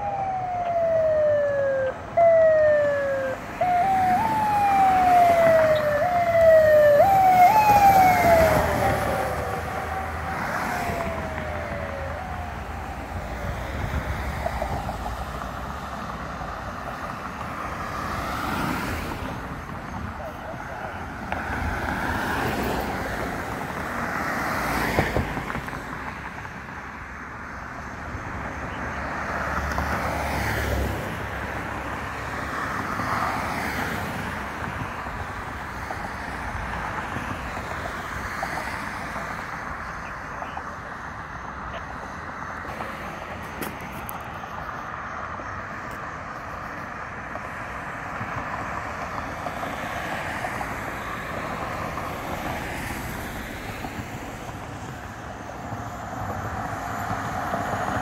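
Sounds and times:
traffic engine and tyre noise: 0.0s - 58.0s.

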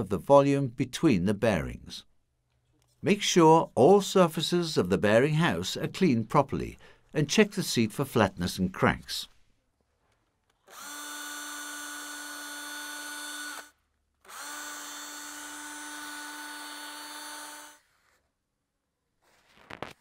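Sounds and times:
cordless drill scouring metal: 10.7s - 17.8s.

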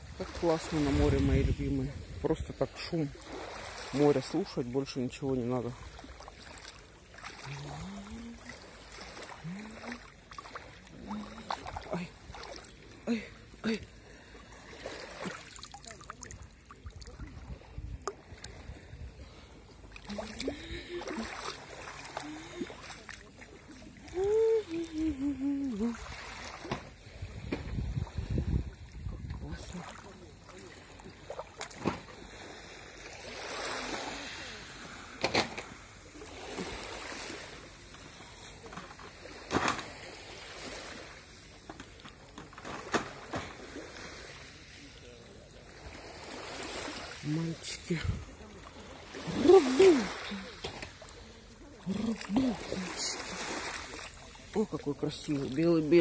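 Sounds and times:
small waves lapping on pebbles: 0.0s - 56.0s
water sloshing and trickling: 0.0s - 56.0s
water drips and splashes: 0.1s - 35.4s, 46.4s - 56.0s
person humming: 7.5s - 8.5s, 9.4s - 10.1s, 11.0s - 12.2s, 20.0s - 21.4s, 22.2s - 22.8s, 24.0s - 26.2s, 49.2s - 50.5s.

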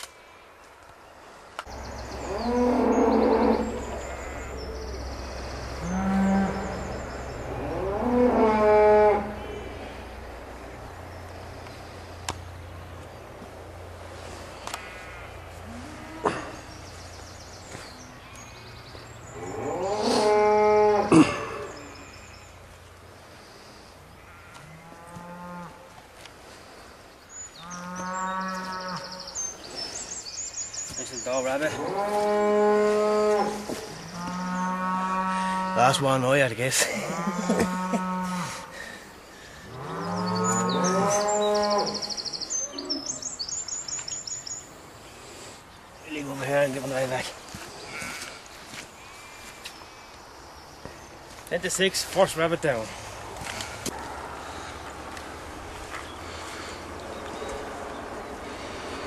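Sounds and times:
cattle mooing: 2.1s - 4.6s, 5.8s - 9.8s, 37.1s - 38.7s, 39.8s - 42.0s.

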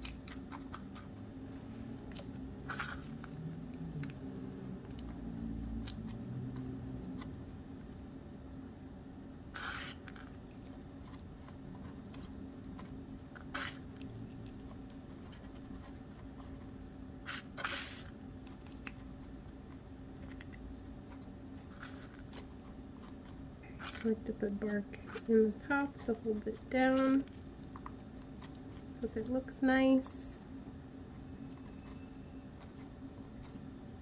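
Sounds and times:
low room hum: 0.0s - 34.0s
rustles and scrapes of soil: 21.6s - 27.4s.

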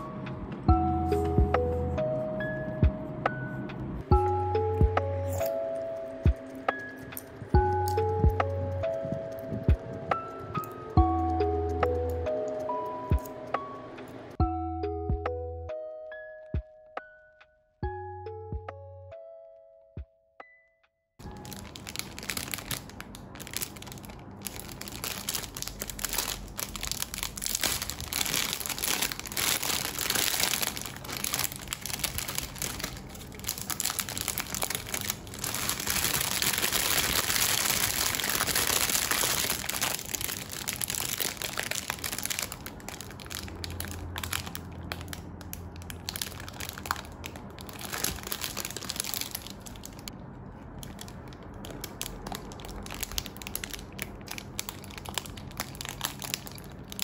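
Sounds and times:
plastic bag crinkling: 21.2s - 57.0s.

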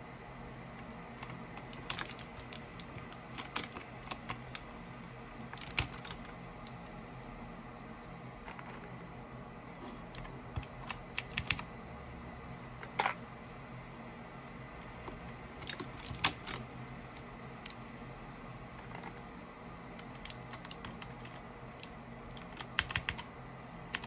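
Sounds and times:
mechanical keyboard keys clacking: 1.2s - 4.7s, 5.6s - 6.3s, 10.2s - 11.7s, 14.8s - 17.8s, 20.0s - 23.3s.

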